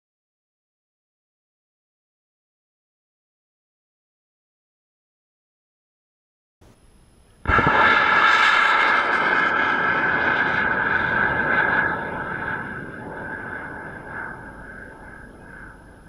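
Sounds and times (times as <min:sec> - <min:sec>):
rocket engine roar: 0:07.4 - 0:16.0.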